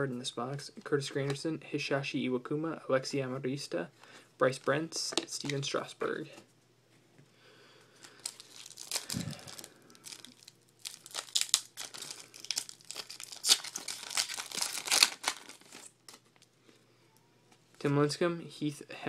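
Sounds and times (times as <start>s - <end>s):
foil wrapper tearing and crinkling: 8.0s - 16.4s.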